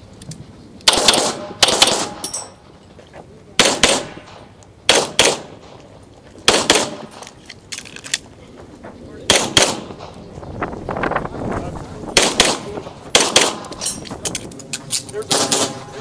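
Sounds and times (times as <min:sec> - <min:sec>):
pistol double tap shots: 0:00.8 - 0:02.3, 0:03.6 - 0:05.9, 0:06.5 - 0:07.2, 0:09.3 - 0:10.2, 0:12.2 - 0:13.9, 0:15.3 - 0:15.8.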